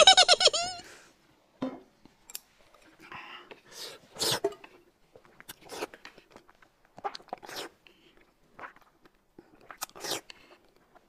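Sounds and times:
man slurping and chewing noodles: 0:03.6 - 0:11.0.

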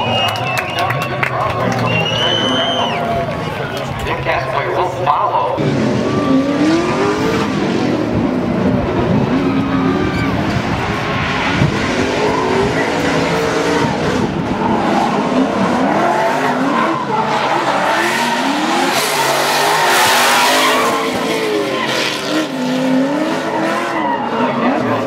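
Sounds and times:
car engines revving: 0:00.0 - 0:25.0
tyres screeching: 0:14.5 - 0:24.8.

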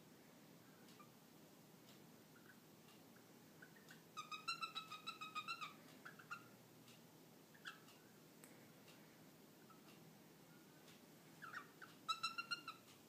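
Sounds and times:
cockatiel chirping: 0:03.6 - 0:06.5, 0:07.6 - 0:07.9, 0:11.4 - 0:12.9.

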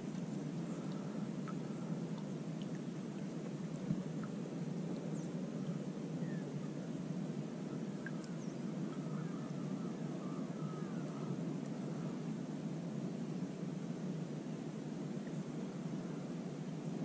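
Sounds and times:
low outdoor rumble: 0:00.0 - 0:17.0
faint bird chirps: 0:05.0 - 0:07.0, 0:07.6 - 0:12.2.

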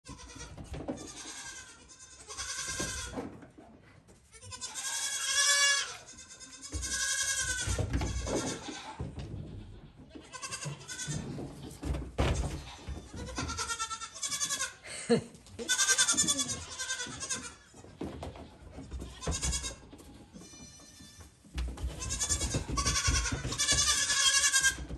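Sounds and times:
goat kids bleating: 0:00.1 - 0:03.2, 0:04.2 - 0:11.7, 0:12.4 - 0:14.9, 0:15.5 - 0:24.9
hooves knocking on wooden boards: 0:02.5 - 0:03.4, 0:06.6 - 0:14.6, 0:16.0 - 0:24.9.

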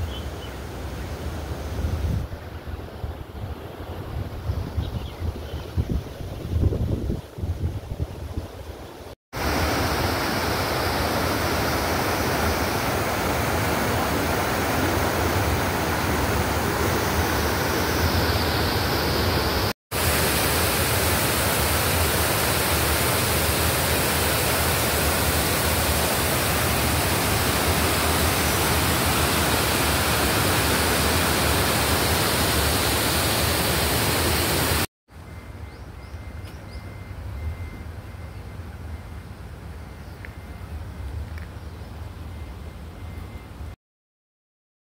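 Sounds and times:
water rushing over a weir: 0:09.4 - 0:34.9.

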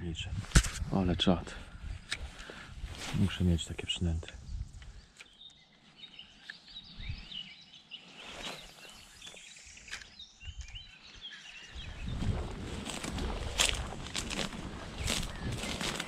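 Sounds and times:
small birds chirping: 0:01.2 - 0:16.0
footsteps through undergrowth: 0:01.8 - 0:03.8, 0:11.6 - 0:16.0.

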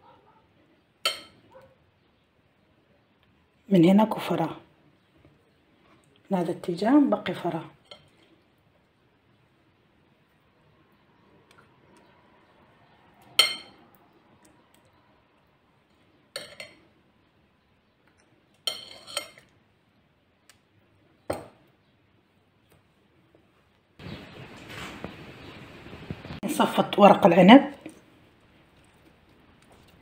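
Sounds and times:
metal spoon clinking glass bowl: 0:01.0 - 0:01.4, 0:13.3 - 0:13.9, 0:16.4 - 0:16.8, 0:18.6 - 0:19.5.

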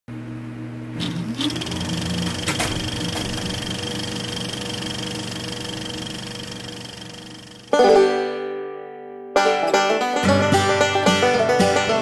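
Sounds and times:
film projector whirring: 0:00.9 - 0:07.8
projector clicks: 0:01.0 - 0:06.1.

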